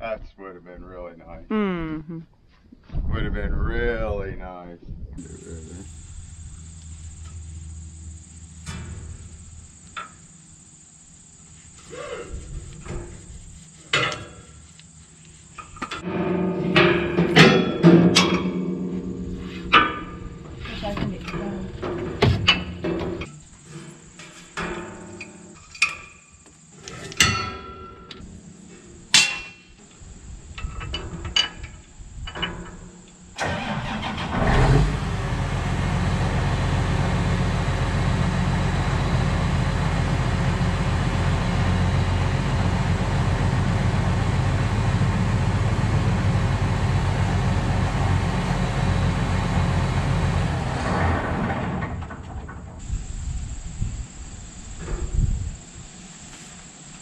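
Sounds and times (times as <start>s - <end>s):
tractor diesel engine running: 5.2s - 24.8s, 33.4s - 54.4s
metal clanks and knocks: 6.6s - 10.4s, 12.8s - 14.6s, 15.6s - 26.2s, 26.8s - 28.2s, 30.6s - 33.0s, 48.5s - 52.9s.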